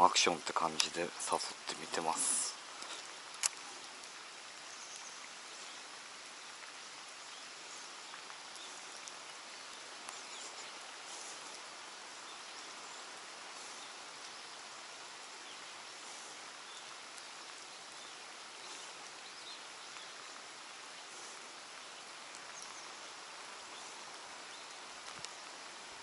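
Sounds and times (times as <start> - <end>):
light rain on water and concrete: 0.0 - 26.0
faint ticks: 0.7 - 5.8, 6.4 - 12.9, 20.9 - 25.7.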